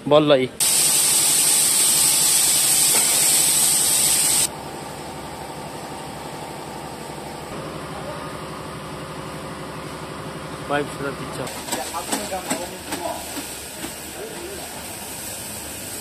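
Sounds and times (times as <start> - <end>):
compressed air hissing: 0.6 - 4.5
diesel truck engine idling: 4.5 - 11.4.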